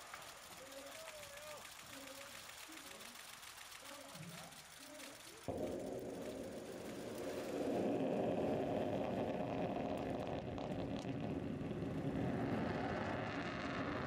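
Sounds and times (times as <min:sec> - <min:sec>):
rocket exhaust rumble: 0:05.5 - 0:14.0.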